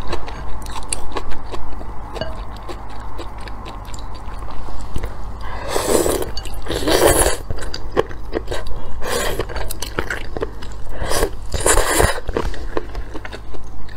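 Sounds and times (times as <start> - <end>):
wet chewing: 0.0 - 13.9
noodles being slurped: 10.9 - 12.8.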